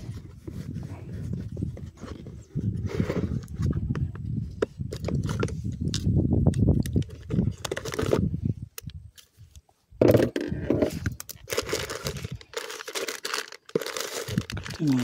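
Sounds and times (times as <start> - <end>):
rummaging in plastic cooler: 0.0 - 4.0, 7.0 - 8.3, 10.0 - 15.0
plastic bags crinkling: 11.2 - 15.0.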